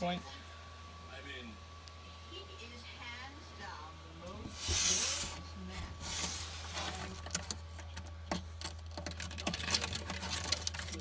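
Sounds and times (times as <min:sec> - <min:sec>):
steady low hum: 0:00.0 - 0:11.0
lizard claws scratching and clicking: 0:06.2 - 0:11.0.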